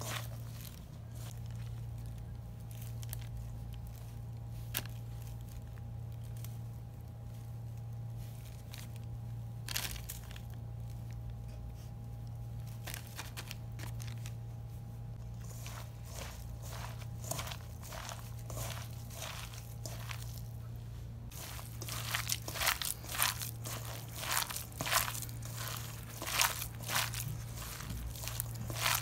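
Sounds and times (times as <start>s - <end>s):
spoon scooping flour: 0.0s - 9.0s, 15.2s - 29.0s
plastic bag crinkling: 0.0s - 11.3s, 12.6s - 14.4s, 15.2s - 20.6s, 21.3s - 29.0s
low hum: 0.0s - 29.0s.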